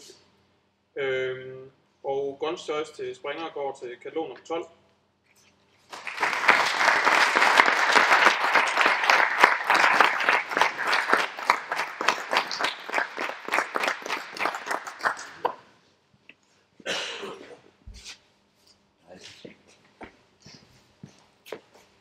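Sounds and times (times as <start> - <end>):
audience applauding: 5.9 - 15.6.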